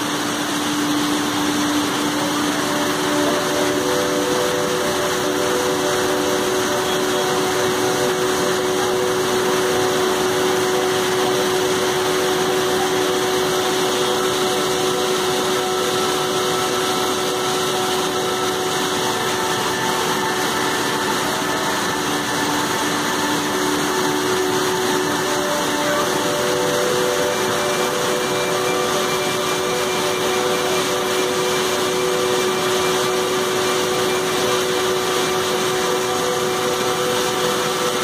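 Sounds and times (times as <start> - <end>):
water rushing over a weir: 0.0 - 38.0.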